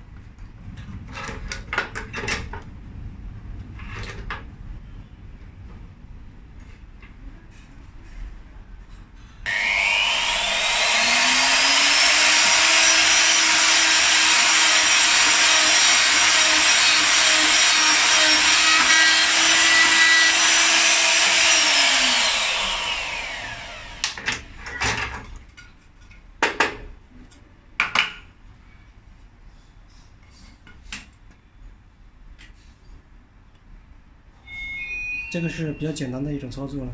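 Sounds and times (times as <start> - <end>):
router motor whining: 9.5 - 24.2.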